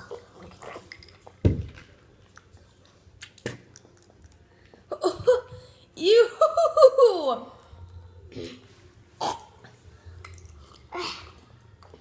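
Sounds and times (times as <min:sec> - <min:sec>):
mouth chewing: 0:00.0 - 0:01.4, 0:02.3 - 0:04.8.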